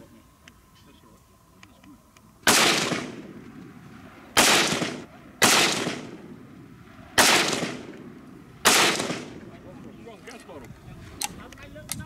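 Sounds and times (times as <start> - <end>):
rifle shots echoing: 2.4 - 9.6.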